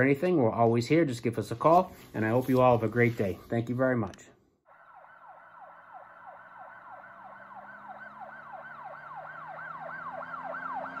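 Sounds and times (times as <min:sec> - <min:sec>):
police siren yelping: 0:04.7 - 0:11.0.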